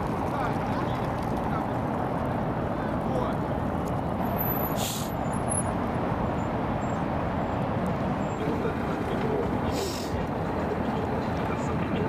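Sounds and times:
distant traffic: 0.0 - 12.0
low city rumble: 0.0 - 12.0
brief hiss: 4.8 - 5.2.

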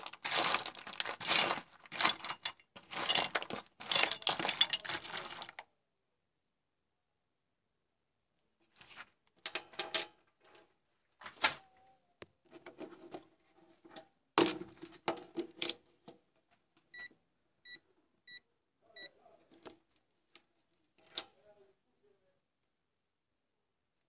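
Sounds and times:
electronic components rattling: 0.0 - 5.6.

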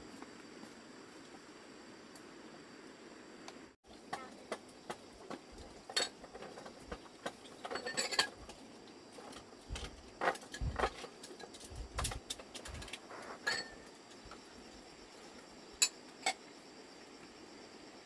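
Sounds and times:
household items clinking: 5.4 - 8.6.

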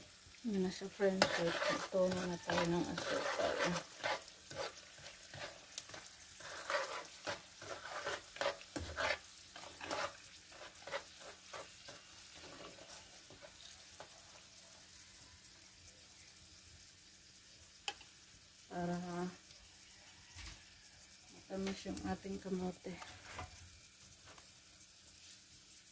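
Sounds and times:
food sizzling in oil: 0.0 - 25.9
metal spatula scraping a wok: 0.6 - 14.5, 22.9 - 23.6.

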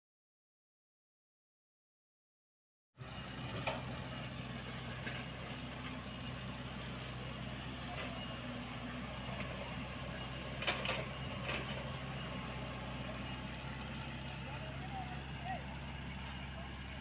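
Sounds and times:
excavator digging soil: 3.0 - 15.4
excavator diesel engine running: 3.0 - 17.0.

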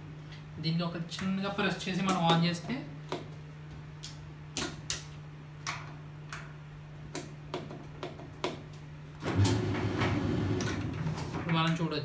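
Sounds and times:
electric dryer humming: 9.1 - 11.7.

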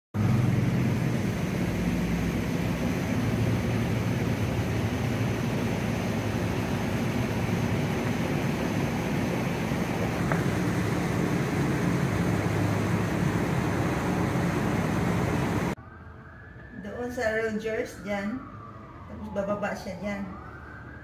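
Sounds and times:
low mechanical drone: 0.2 - 16.6.

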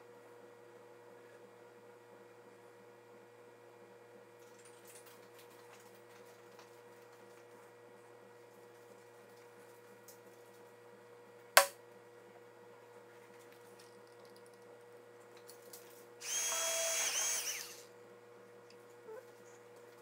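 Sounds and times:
small motor whirring: 16.2 - 17.9.

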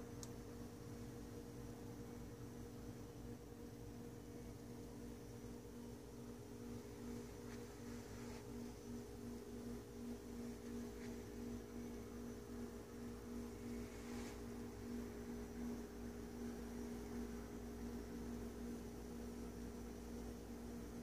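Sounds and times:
faint electrical hum: 0.0 - 21.0.

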